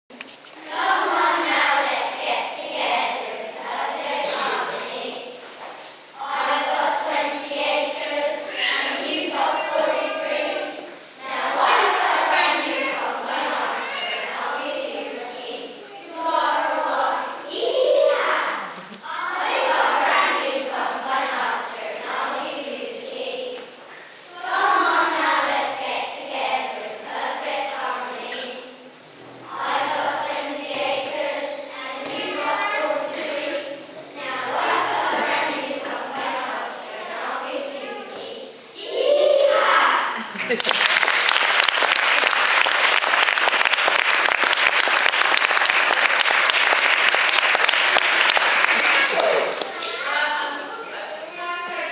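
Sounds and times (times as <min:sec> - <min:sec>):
children singing in unison: 0:00.6 - 0:40.2
audience applauding: 0:40.4 - 0:50.2.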